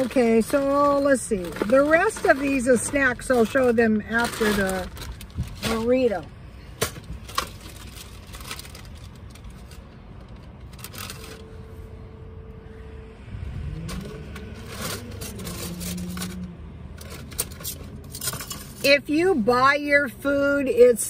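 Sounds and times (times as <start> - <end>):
rummaging scrapes and rustles: 0.0 - 11.9, 13.8 - 19.0
low hum: 8.0 - 17.9.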